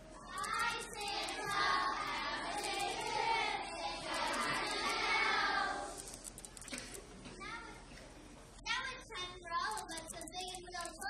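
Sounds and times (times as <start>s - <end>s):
children singing together: 0.0s - 6.1s.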